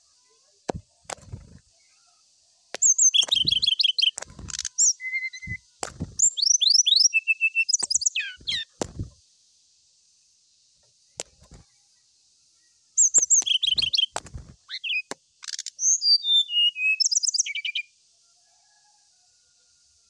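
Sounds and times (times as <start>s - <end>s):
bird landing on cage perch: 0.7s - 1.6s, 5.8s - 6.3s, 14.2s - 14.6s
bird singing chirps and whistles: 2.8s - 9.0s, 13.0s - 17.9s.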